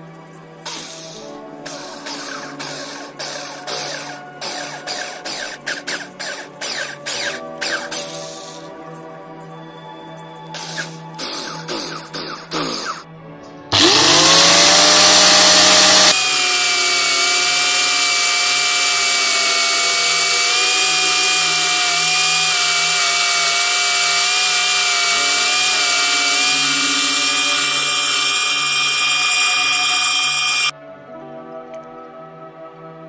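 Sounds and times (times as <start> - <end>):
drill bit scraping in wood: 13.7 - 30.7
electric disc sander whining: 13.7 - 30.7
wood grinding against sanding disc: 13.7 - 30.7.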